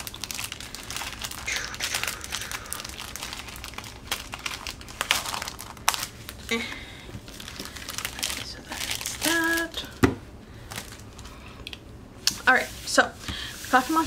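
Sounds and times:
cellophane crinkling: 0.0 - 10.0, 10.6 - 11.8.

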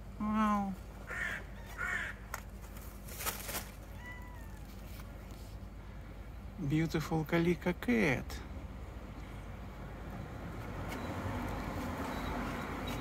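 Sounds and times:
crow cawing: 1.1 - 2.3.

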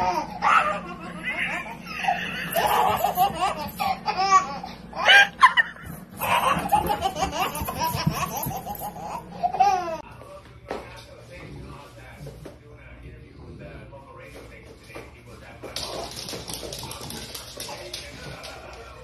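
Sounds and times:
toddler laughing: 0.0 - 10.0.

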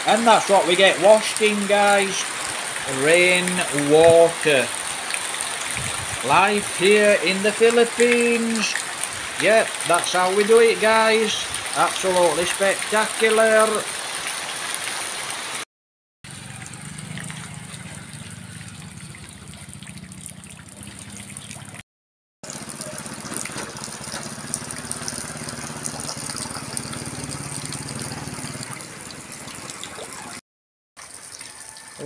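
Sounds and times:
heavy rain falling: 0.0 - 15.6, 22.5 - 29.8
small motorcycle engine humming: 16.3 - 21.4, 22.5 - 29.0.

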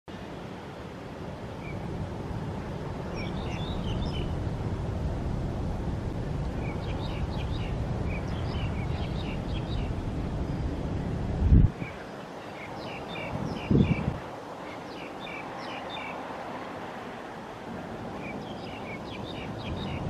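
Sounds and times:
distant jet engine rumble: 0.1 - 20.0
small birds chirping: 3.1 - 4.4, 6.6 - 10.8, 11.7 - 16.3, 18.2 - 20.0.

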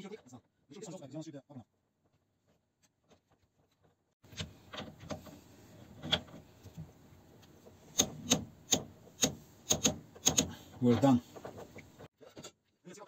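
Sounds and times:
handling noise: 3.2 - 12.1.

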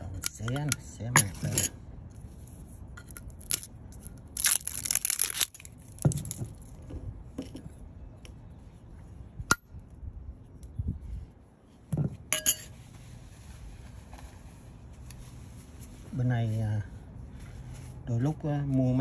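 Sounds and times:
metal spoon against ceramic bowl: 0.0 - 1.7, 12.3 - 12.7
jar and lid clicks and taps: 0.2 - 0.8
seal tearing rustle: 4.3 - 6.4.

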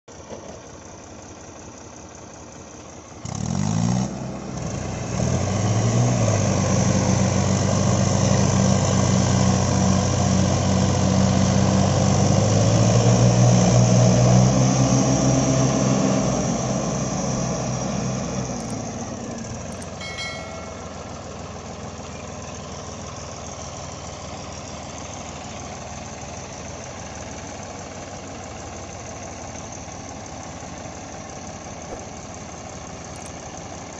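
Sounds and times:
tractor engines revving under load: 3.2 - 21.1.

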